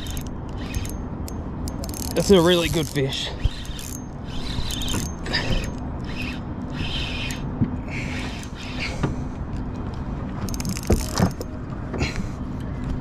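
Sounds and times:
fishing reel whirring and clicking: 0.0 - 8.9, 10.5 - 11.3
steady low hum: 0.0 - 13.0.

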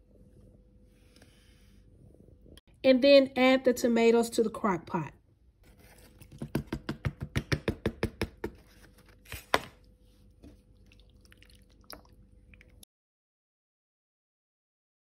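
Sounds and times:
wooden spoon stirring sauce: 5.7 - 9.1
spoon knocking pot: 6.3 - 8.6.

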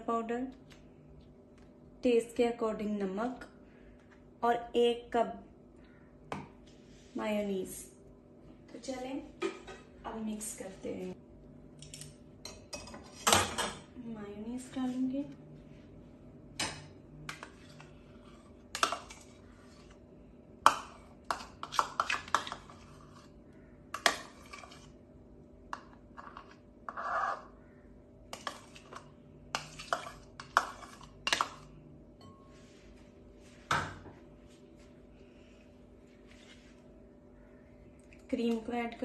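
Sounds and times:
scraping in a bowl: 17.3 - 20.0, 20.7 - 25.0, 25.8 - 27.6, 28.3 - 33.0.

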